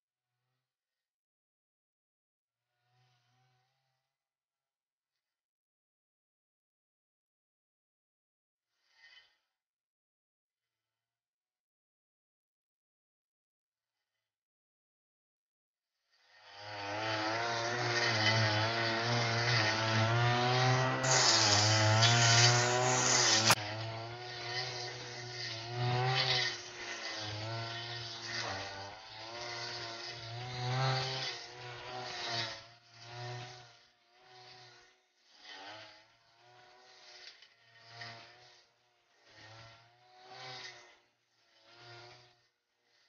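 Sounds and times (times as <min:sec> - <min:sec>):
brush cutter engine high revs: 0:16.2 - 0:43.0.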